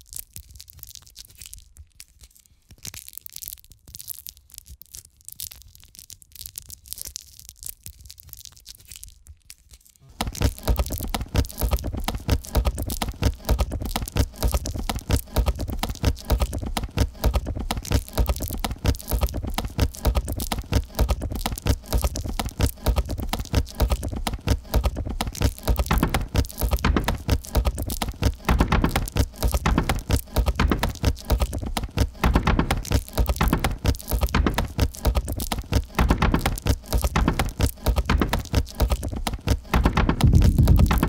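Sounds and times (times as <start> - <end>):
rain pattering on plastic: 10.0 - 41.0.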